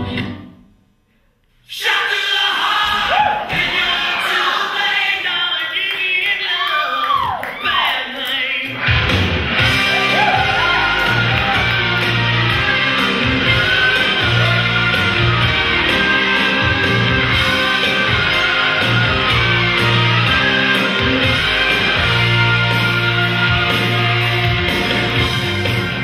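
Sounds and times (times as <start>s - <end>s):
rock band playing: 8.7s - 26.0s
person singing: 9.6s - 25.9s.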